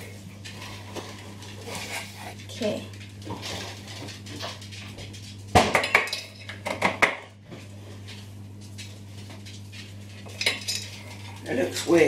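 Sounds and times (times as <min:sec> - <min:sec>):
low steady hum: 0:00.0 - 0:12.0
clattering baking tins: 0:05.6 - 0:07.3, 0:10.2 - 0:12.0.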